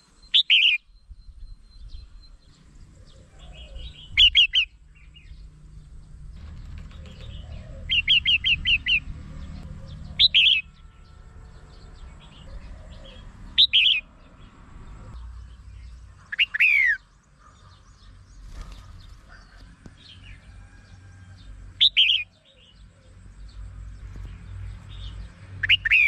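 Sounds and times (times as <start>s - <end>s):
bird calling bright phrases: 16.2s - 17.0s.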